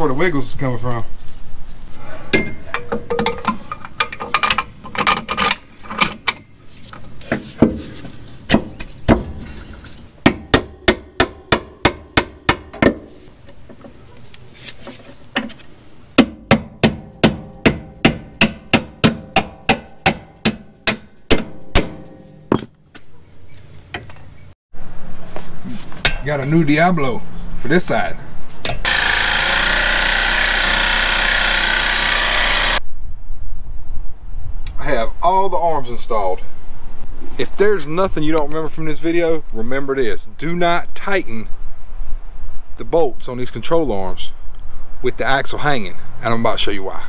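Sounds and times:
hammer striking metal: 10.2 - 13.2, 16.2 - 22.8.

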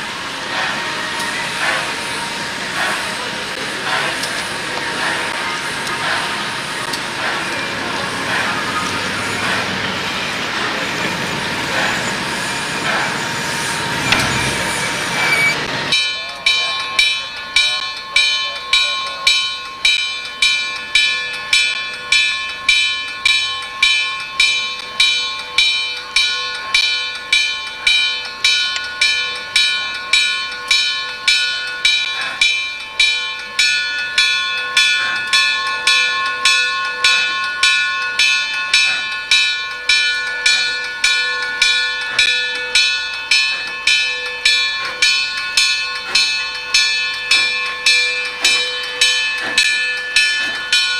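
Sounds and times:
railroad bell ringing: 0.0 - 50.9
steam locomotive passing: 0.0 - 50.9.

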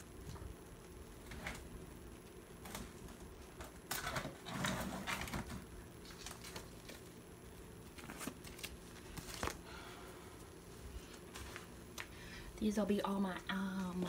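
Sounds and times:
plastic rustling and scraping: 2.6 - 7.2.

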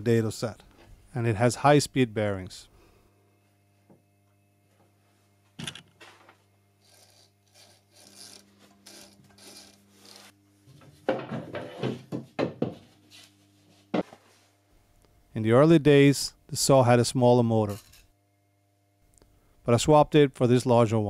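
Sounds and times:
wooden knocks and rubs: 10.8 - 12.9.

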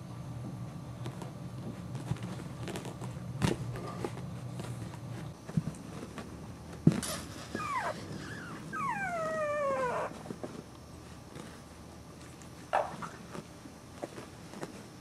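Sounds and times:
puppy whimpering and whining: 7.4 - 10.3
puppy yelp: 7.5 - 10.2.

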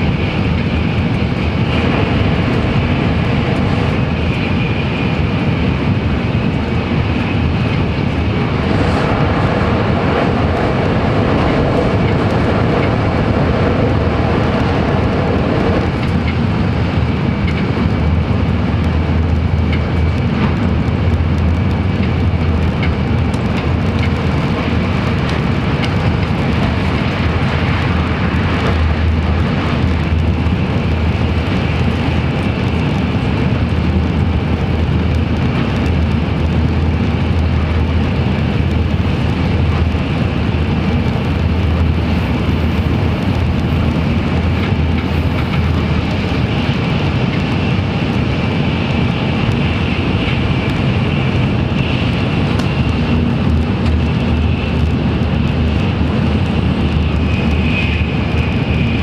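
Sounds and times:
train running rumble: 0.0 - 59.0.

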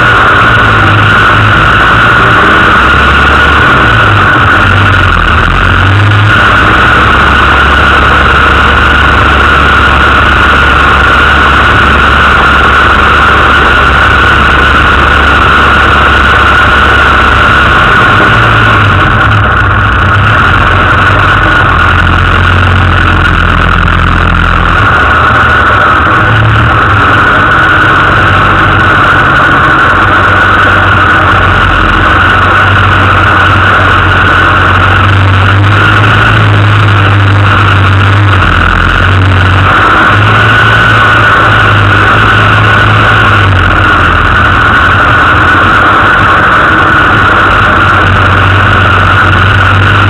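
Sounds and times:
car engine at low revs: 0.0 - 50.0
steady high whine: 0.0 - 50.0.

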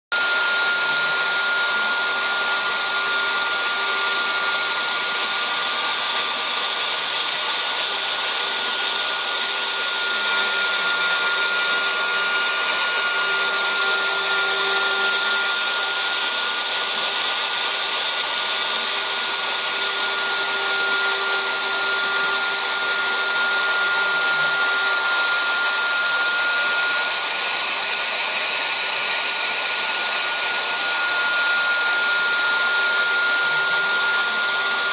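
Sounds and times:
router spindle whining: 0.2 - 34.9
bit milling wood: 2.2 - 23.6.

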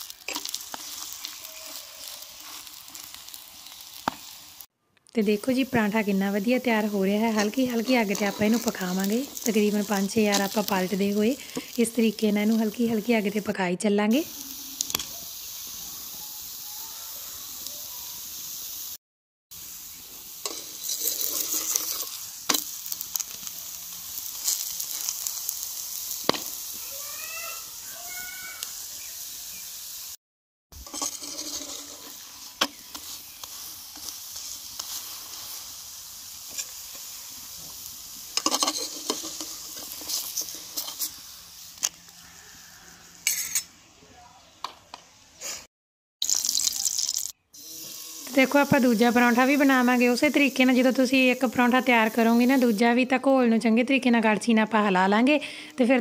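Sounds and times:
flatbread sizzling in a pan: 0.0 - 13.6, 14.2 - 30.2, 30.8 - 43.6, 45.4 - 53.1
metal spatula scraping a pan: 6.9 - 11.7, 20.4 - 23.2, 30.8 - 35.6, 38.4 - 41.2.

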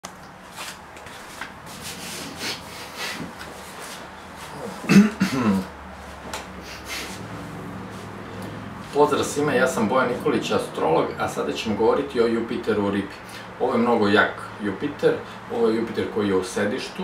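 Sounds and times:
clothing and leather chair rustling: 0.4 - 5.0, 5.9 - 9.6.

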